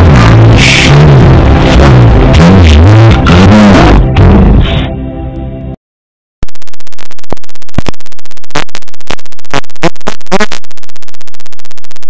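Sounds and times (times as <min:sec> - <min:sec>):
harsh stuttering buzz: 0:06.4 - 0:12.0.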